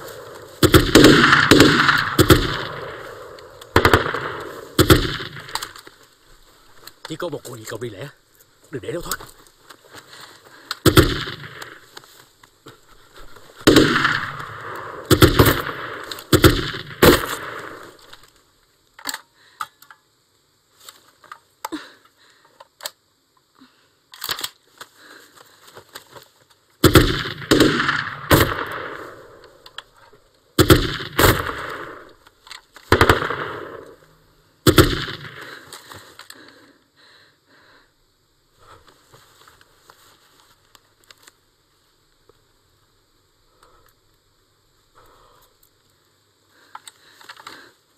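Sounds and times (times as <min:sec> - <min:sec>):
rifle shots with echo: 0:00.0 - 0:05.7, 0:10.8 - 0:11.8, 0:13.6 - 0:18.0, 0:26.8 - 0:29.6, 0:30.6 - 0:32.1, 0:32.9 - 0:34.0, 0:34.6 - 0:35.6.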